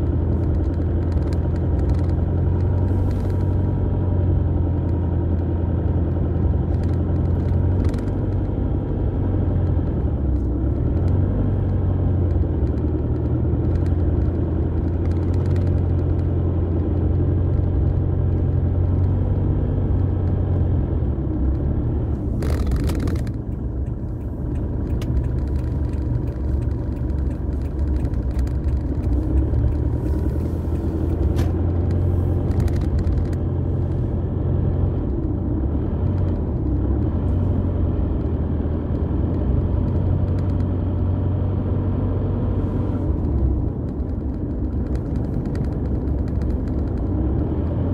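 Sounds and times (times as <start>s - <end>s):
car rumbling on dirt road: 0.0s - 47.9s.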